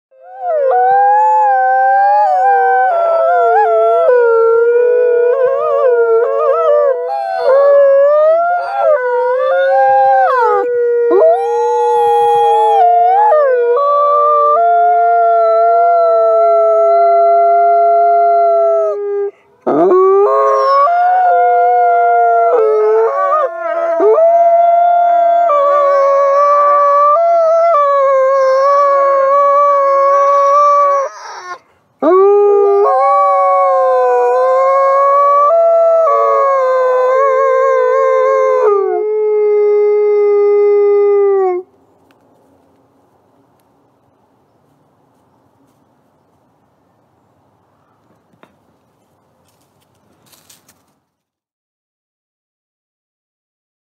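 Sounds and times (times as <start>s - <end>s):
wolves howling: 0.2s - 41.6s.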